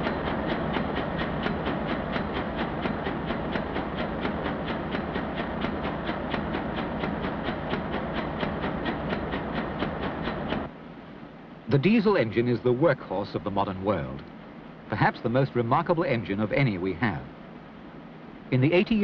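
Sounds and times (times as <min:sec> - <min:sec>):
large diesel engine clattering: 0:00.0 - 0:10.7.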